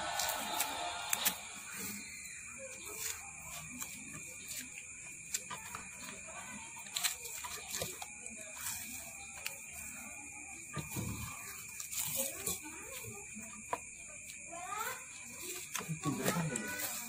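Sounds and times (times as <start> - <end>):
masking tape pulled off roll: 0.0 - 1.6
tape crackles and clicks: 0.0 - 9.9.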